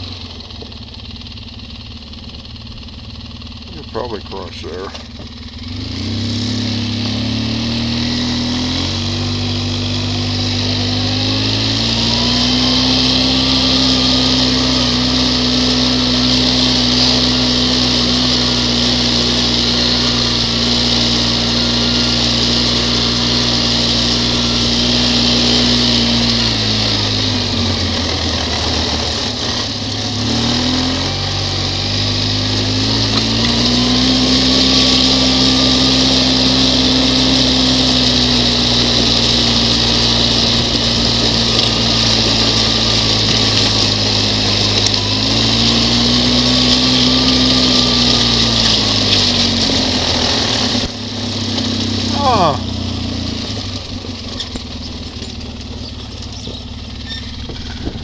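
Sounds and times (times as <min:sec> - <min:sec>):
quad bike engine running: 0:00.0 - 0:58.0.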